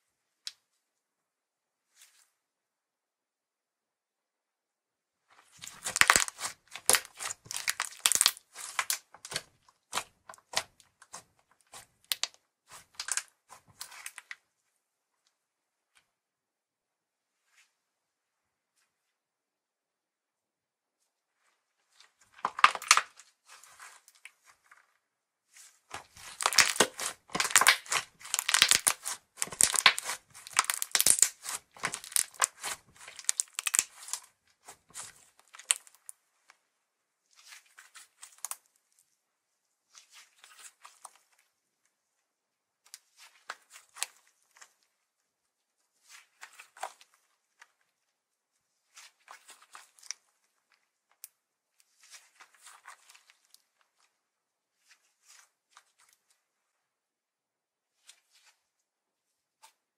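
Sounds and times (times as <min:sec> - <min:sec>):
slime crackling and popping: 0:05.6 - 0:14.3, 0:22.4 - 0:23.2, 0:25.9 - 0:34.3, 0:34.9 - 0:36.0.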